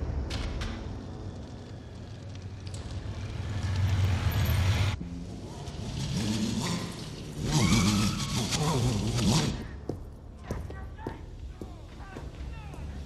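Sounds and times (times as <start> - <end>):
motorcycle engine revving: 5.8 - 9.6.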